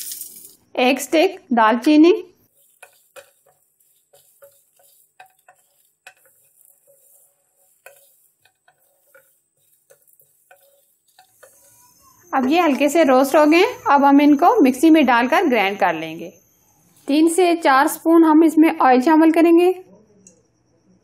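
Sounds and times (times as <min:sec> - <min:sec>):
spatula scraping spices in pan: 0:02.3 - 0:15.8, 0:16.4 - 0:18.0.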